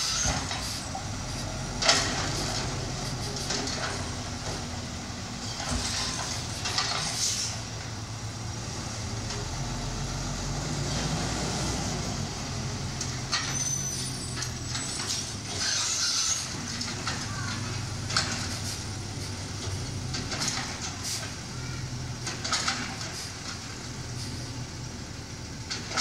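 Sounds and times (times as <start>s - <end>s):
garbage truck engine hum: 0.0s - 26.0s
high squeal: 13.4s - 16.6s.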